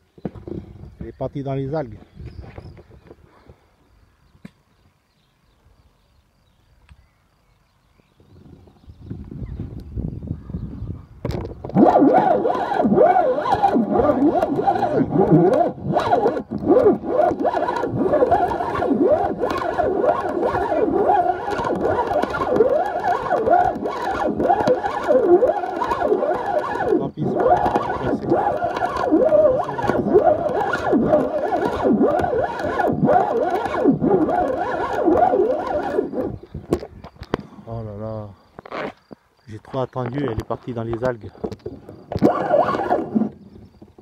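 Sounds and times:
fishing reel drag screaming: 11.7 - 36.5, 42.1 - 43.8.

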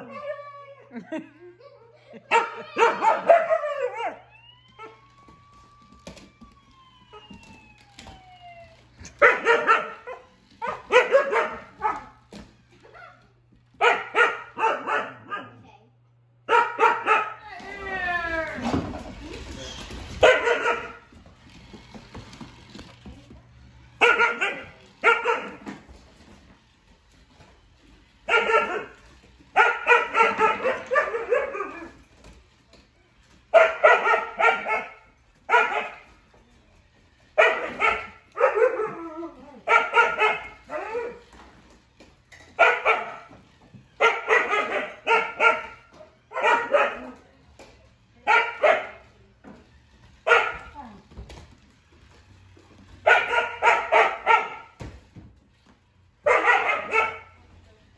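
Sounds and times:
dog barking: 2.3 - 4.2, 9.2 - 12.1, 13.8 - 15.6, 16.5 - 17.4, 20.2 - 21.0, 24.0 - 25.6, 28.3 - 28.9, 29.6 - 31.8, 33.5 - 36.0, 37.4 - 39.0, 39.7 - 40.6, 42.6 - 43.3, 44.0 - 47.2, 48.2 - 49.0, 50.3 - 50.7, 53.0 - 54.8, 56.2 - 57.4.

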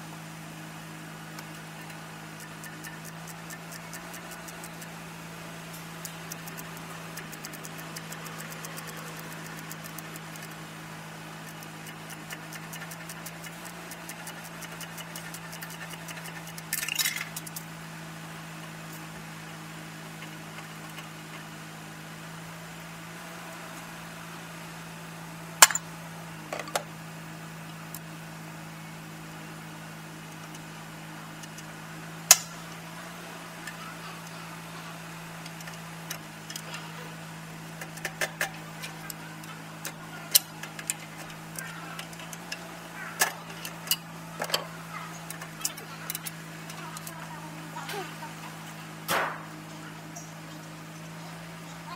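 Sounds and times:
steady low hum: 0.0 - 51.9
metal tools clinking: 14.2 - 17.7, 37.8 - 47.3.

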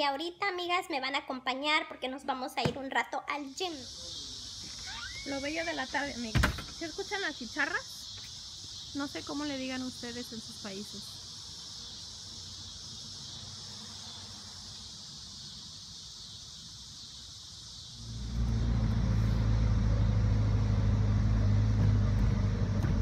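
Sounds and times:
cicadas droning: 0.0 - 23.0
loud low rumble: 18.0 - 23.0.

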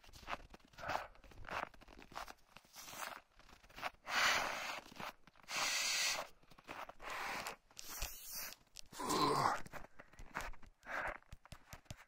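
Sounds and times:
footsteps crunching through deep snow: 0.0 - 8.6.

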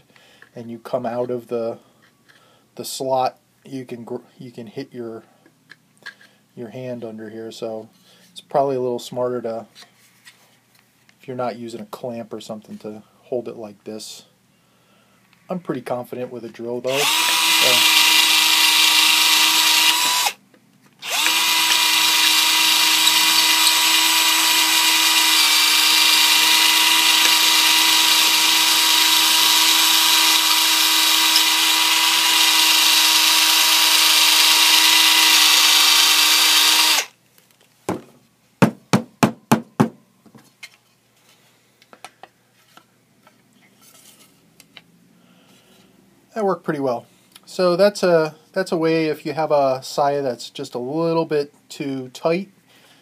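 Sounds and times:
cordless drill running: 16.9 - 20.4, 21.0 - 37.1.

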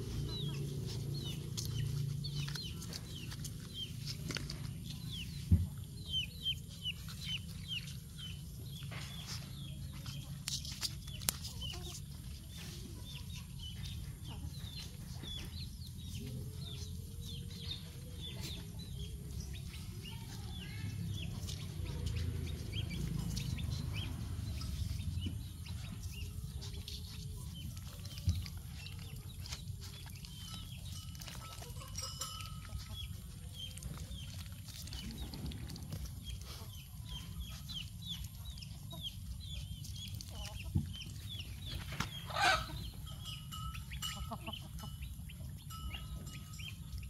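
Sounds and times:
steady low rumble: 0.0 - 11.2, 12.2 - 31.2.

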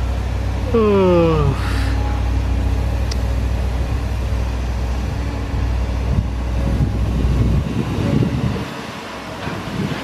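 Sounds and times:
excavator diesel engine droning: 0.0 - 10.0.

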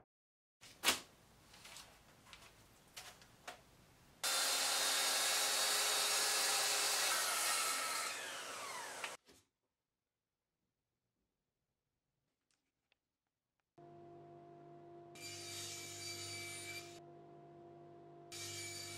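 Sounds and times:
track saw running: 4.2 - 9.2.

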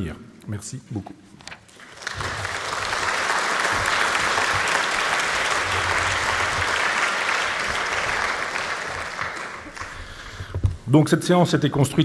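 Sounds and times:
audience applauding: 1.8 - 10.4.

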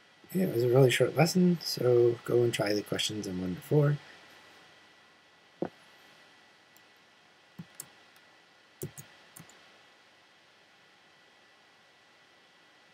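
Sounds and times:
faint steady hiss: 0.0 - 12.9
computer mouse clicks: 7.6 - 9.6.

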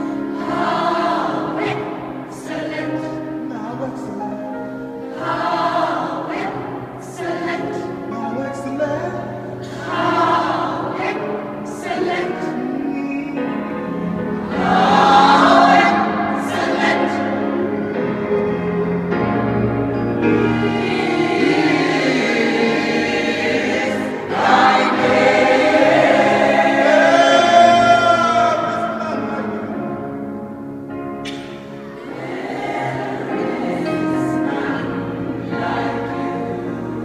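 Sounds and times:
gospel choir singing: 0.0 - 37.0.

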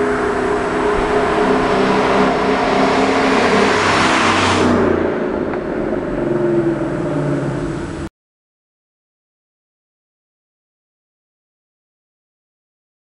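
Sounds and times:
car driving past: 0.0 - 8.1.

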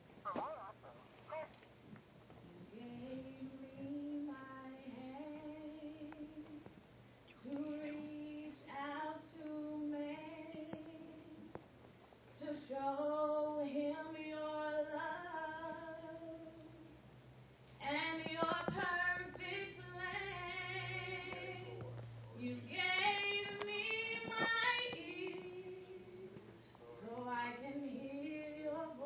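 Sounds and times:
woman singing gospel song: 2.6 - 6.8, 7.4 - 11.6, 12.3 - 17.0, 17.8 - 21.8, 22.4 - 26.4, 27.0 - 29.0.

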